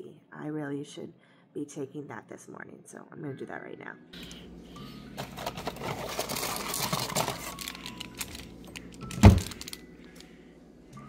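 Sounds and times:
rummaging through boxes and sachets: 5.0s - 10.3s.

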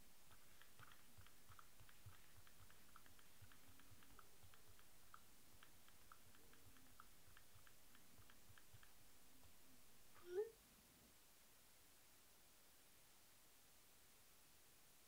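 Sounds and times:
touchscreen keyboard typing clicks: 0.3s - 9.0s.

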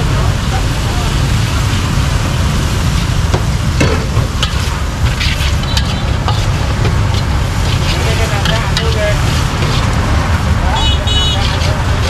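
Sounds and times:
low rumble: 0.0s - 10.8s
stir-fry sizzling: 0.0s - 12.0s
utensils scraping a wok: 2.8s - 12.0s.

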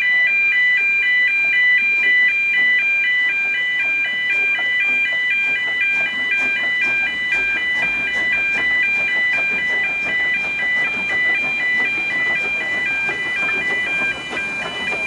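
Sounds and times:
level crossing two-tone alarm: 0.0s - 15.0s.

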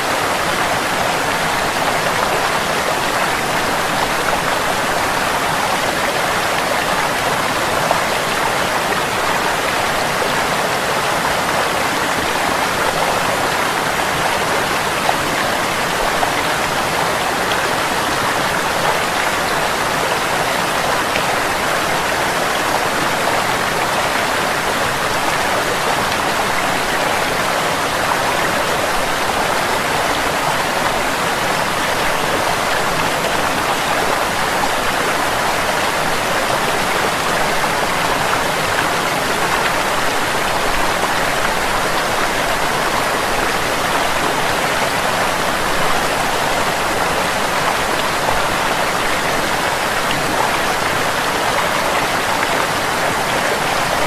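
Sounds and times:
water cascading over rocks: 0.0s - 54.0s.

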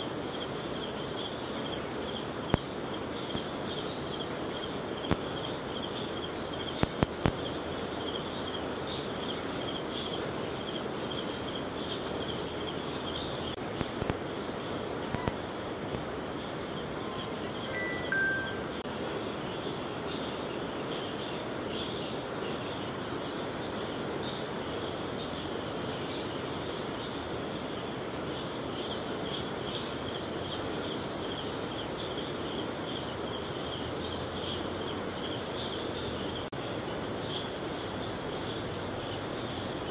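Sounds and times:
crickets and insects chirring: 0.0s - 39.9s
river rushing: 17.3s - 18.8s.

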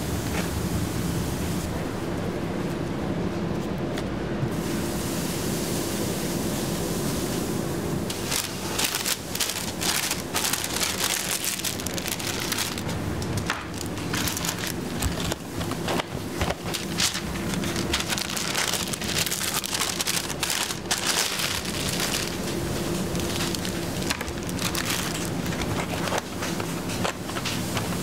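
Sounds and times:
wrapping paper crinkling: 8.1s - 28.0s.

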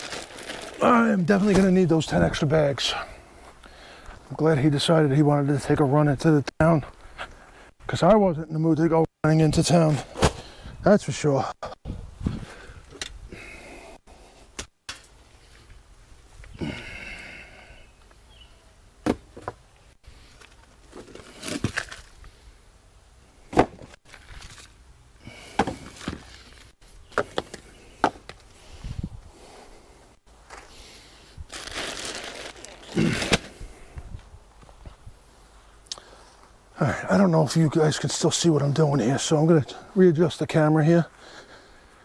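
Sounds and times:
bag rustling: 0.0s - 1.7s, 31.5s - 33.6s
knocks and scraping of mulch: 23.5s - 28.6s.

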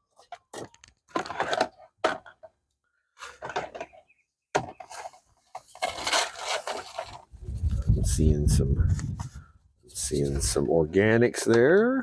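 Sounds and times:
sandy dirt rustling and scraping: 4.7s - 11.0s.

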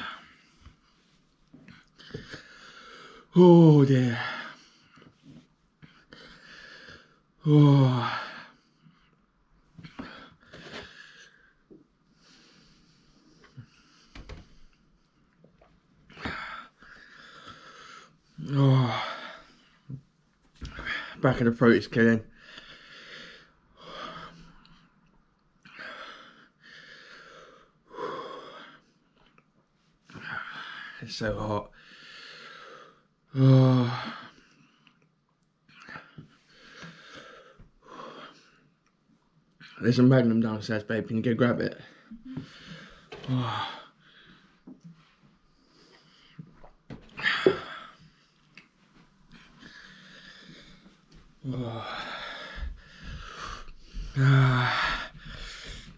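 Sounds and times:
man breathing heavily: 1.6s - 15.2s, 16.1s - 20.0s, 22.3s - 24.9s, 25.6s - 29.0s, 31.7s - 34.8s, 36.2s - 38.8s, 41.8s - 55.9s
man groaning: 7.4s - 8.2s, 54.2s - 55.1s.

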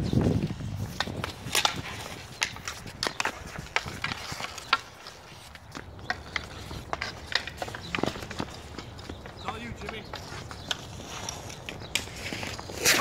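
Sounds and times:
sticks clacking on ball and ice: 0.9s - 13.0s
boots scuffing on ice: 10.1s - 13.0s.

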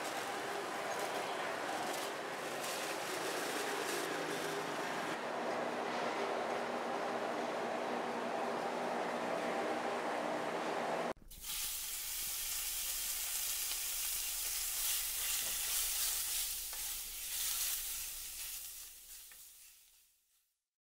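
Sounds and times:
steady sizzling hiss: 11.2s - 20.3s.

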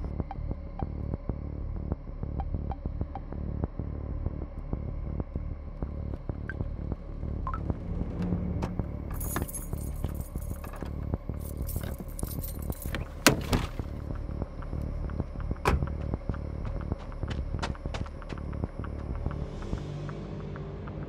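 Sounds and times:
low steady drone: 0.0s - 21.0s
keys jangling: 9.1s - 13.5s.

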